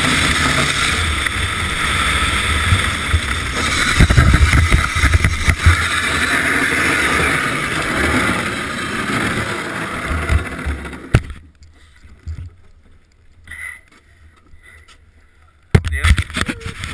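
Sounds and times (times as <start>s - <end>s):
wind on microphone: 0.0s - 10.8s
bobsleigh runners scraping on ice: 0.0s - 11.4s.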